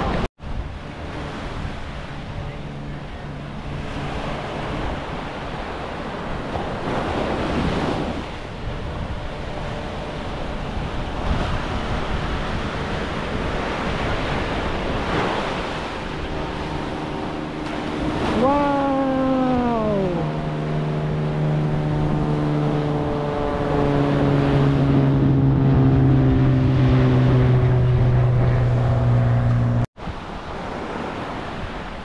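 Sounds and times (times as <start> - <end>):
ocean surf washing ashore: 0.0 - 29.1, 30.0 - 32.0
wind buffeting microphone: 0.0 - 32.0
pitched tone sliding down: 18.2 - 29.8.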